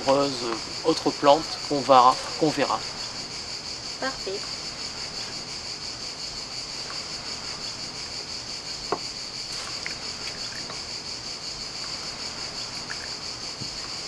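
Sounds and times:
insect chorus buzzing: 0:00.0 - 0:14.0.

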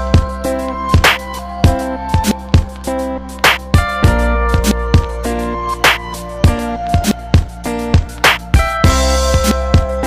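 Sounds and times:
drum beat: 0:05.9 - 0:10.0.

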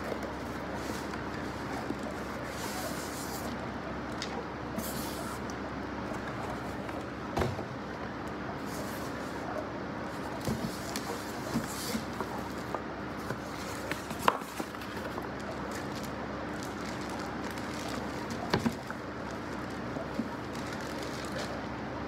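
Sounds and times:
background hum: 0:00.0 - 0:22.0
plastic crinkling: 0:10.1 - 0:22.0.

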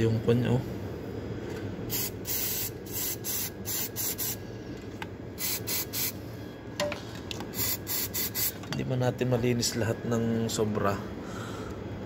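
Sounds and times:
aerosol spray hissing: 0:01.9 - 0:04.4, 0:05.4 - 0:06.2, 0:07.6 - 0:08.6.

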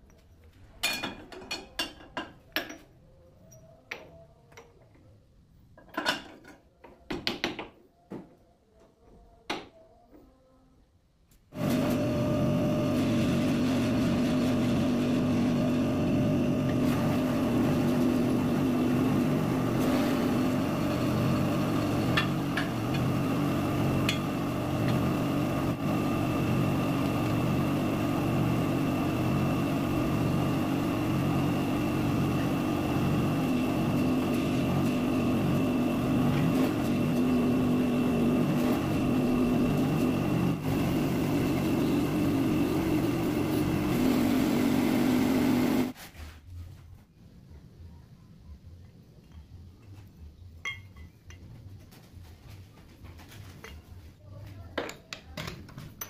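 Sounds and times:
hydraulic pump motor humming: 0:11.6 - 0:46.0.

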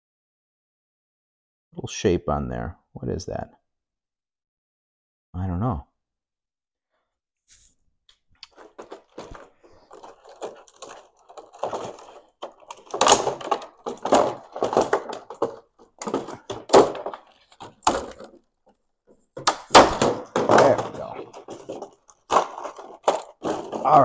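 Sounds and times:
plastic packaging crinkling: 0:08.4 - 0:18.8, 0:19.6 - 0:24.0.

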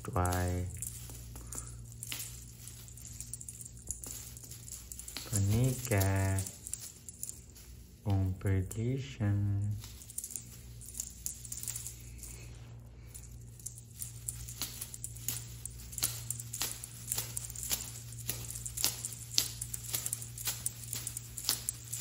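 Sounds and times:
toy tapping on tiled floor: 0:00.0 - 0:08.3, 0:13.1 - 0:22.0
low steady hum: 0:00.0 - 0:22.0.

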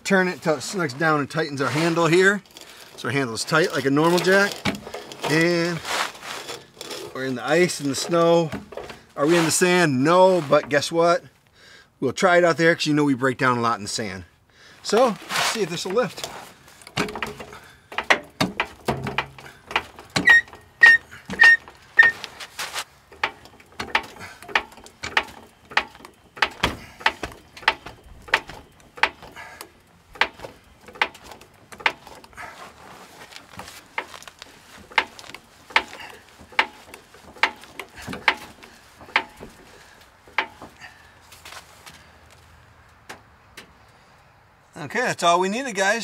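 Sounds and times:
floor jack pump clicking: 0:15.8 - 0:32.5, 0:33.2 - 0:40.9.

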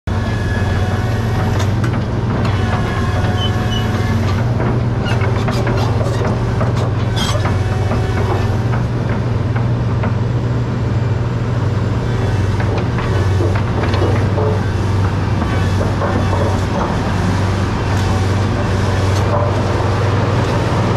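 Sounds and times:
excavator diesel engine droning: 0:00.1 - 0:20.9
metallic clanks and knocks: 0:12.6 - 0:20.6.

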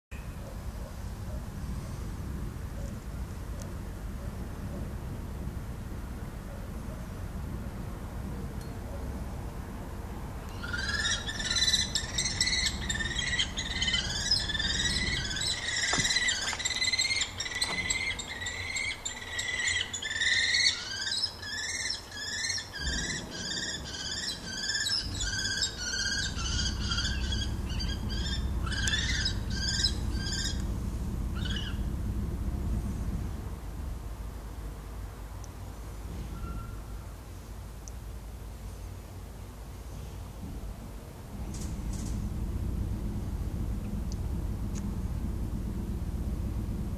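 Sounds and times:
low rumbling noise: 0:00.2 - 0:46.9
kestrels calling: 0:10.4 - 0:32.0.

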